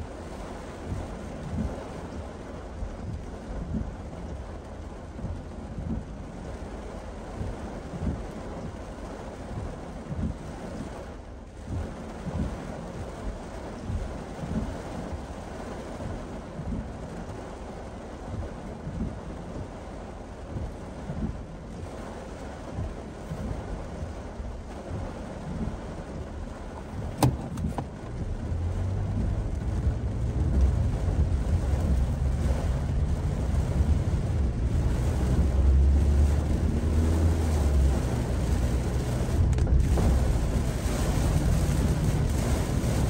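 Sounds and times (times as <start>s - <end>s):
heavy rain on car: 0.0s - 43.0s
tyre and road rumble: 24.8s - 43.0s
sharp click: 27.1s - 27.9s.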